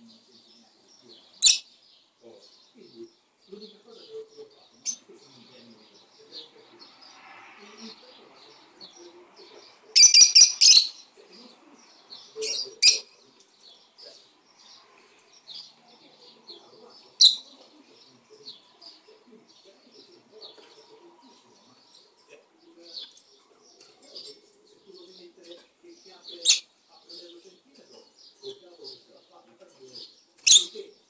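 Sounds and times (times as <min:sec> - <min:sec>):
lovebirds chirping: 0:00.0 - 0:31.0.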